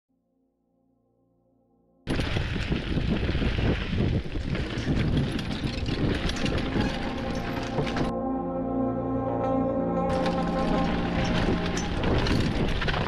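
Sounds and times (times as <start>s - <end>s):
bike rattling: 2.1s - 8.1s, 10.1s - 13.0s
tyres rolling over dirt and planks: 2.1s - 8.1s, 10.1s - 13.0s
wind rushing over microphone: 2.1s - 8.1s, 11.1s - 13.0s.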